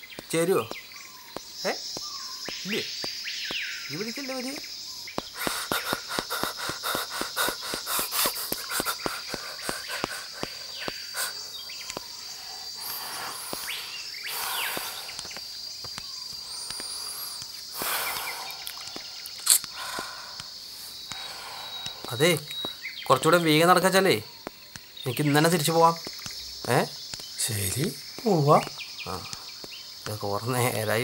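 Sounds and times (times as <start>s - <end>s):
footsteps on dirt path: 0.0s - 3.7s, 5.0s - 23.4s
high bird chirps: 0.0s - 31.0s
insect drone: 0.0s - 31.0s.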